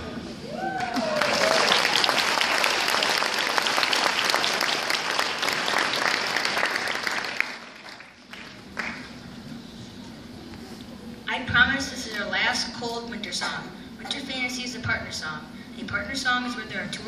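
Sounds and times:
audience applauding: 0.7s - 9.1s.

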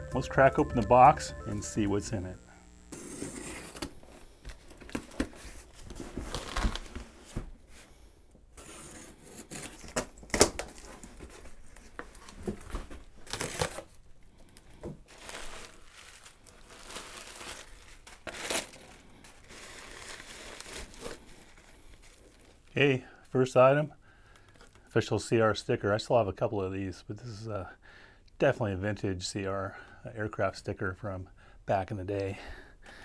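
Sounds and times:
packing tape tearing: 9.4s - 10.9s, 13.2s - 14.0s, 15.1s - 22.6s
plastic wrap crinkling: 15.1s - 22.8s.

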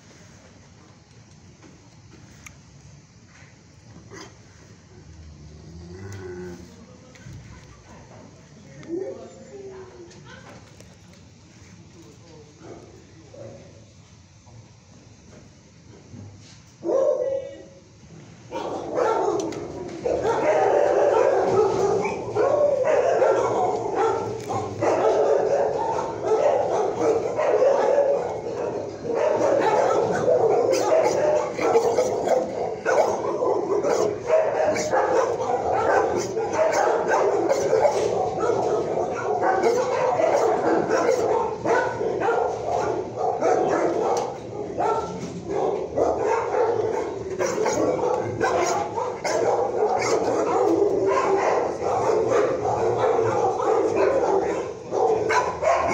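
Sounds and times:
many dogs barking and yipping: 18.5s - 55.9s.

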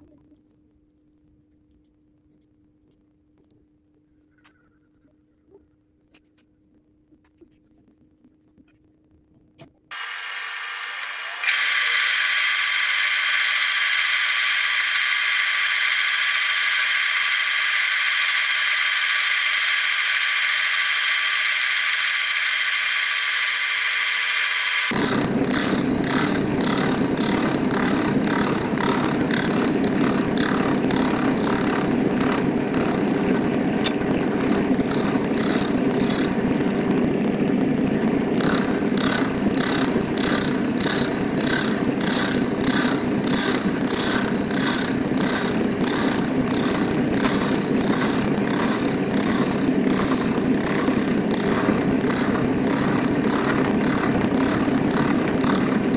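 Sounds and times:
fly-cutter cutting steel: 9.9s - 36.9s, 38.4s - 55.9s
milling machine spindle whine: 9.9s - 55.9s.

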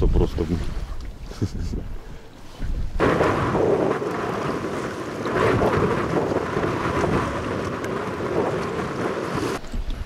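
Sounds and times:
waves splashing around boat: 0.0s - 10.0s
wind rushing over microphone: 0.0s - 10.0s.

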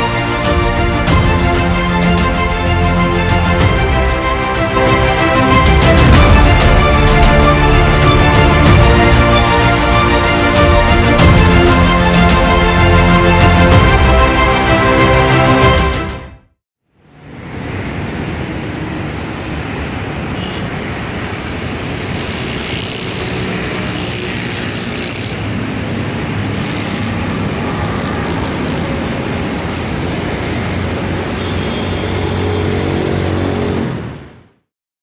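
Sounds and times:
passing vehicles: 16.9s - 34.7s.

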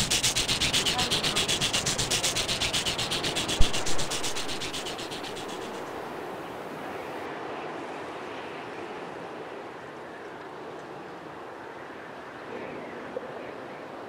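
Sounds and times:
fast rasping pulse: 0.0s - 6.8s
sea surf: 0.0s - 6.8s.

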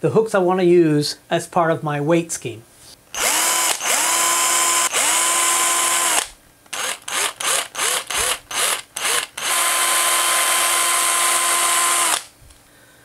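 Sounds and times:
cordless drill whining: 3.2s - 12.4s.

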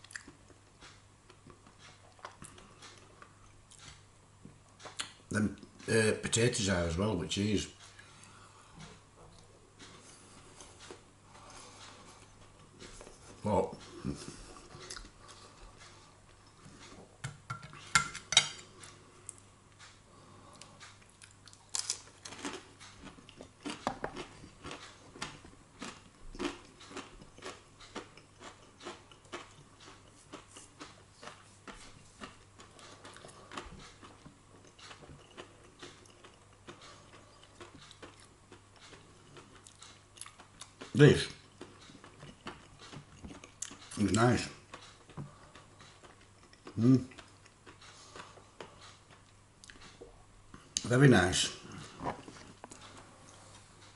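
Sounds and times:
cutlery clinking on a plate: 17.2s - 18.6s.

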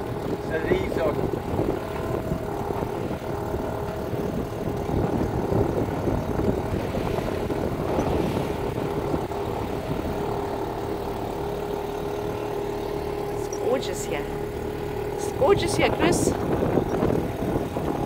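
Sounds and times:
wind on microphone: 0.0s - 11.1s, 14.9s - 18.0s
steady engine drone: 0.0s - 18.0s.

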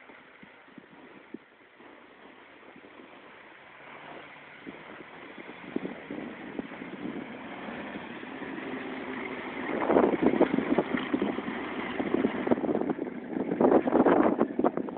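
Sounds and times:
rough churning of tracks: 0.0s - 14.9s
tracked vehicle engine in snow: 0.0s - 14.9s.

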